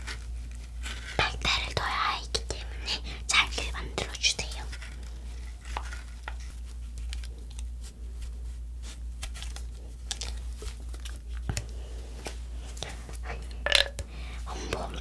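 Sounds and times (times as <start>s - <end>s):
scratching and clicking on coconut shell: 4.4s - 8.0s.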